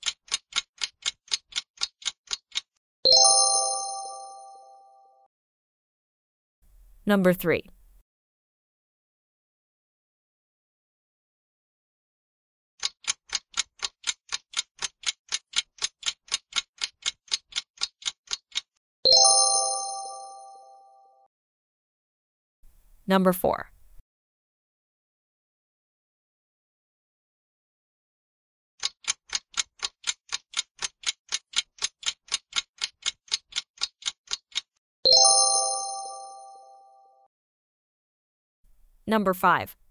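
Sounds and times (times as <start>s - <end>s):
clock ticking: 0.0s - 2.7s, 12.8s - 18.7s, 28.8s - 34.7s.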